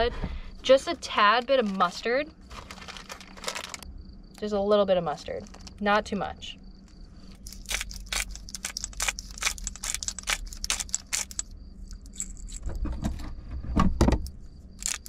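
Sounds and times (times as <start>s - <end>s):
utensil scraping glass cup: 7.4s - 12.6s.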